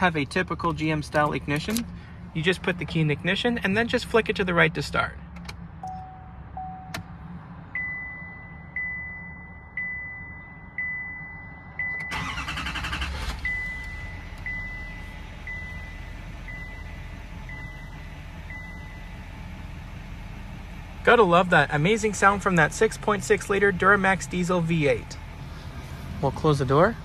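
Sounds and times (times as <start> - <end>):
diesel engine cranking and idling: 0.0 - 27.0
dashboard warning chime: 5.8 - 7.1, 7.7 - 19.2.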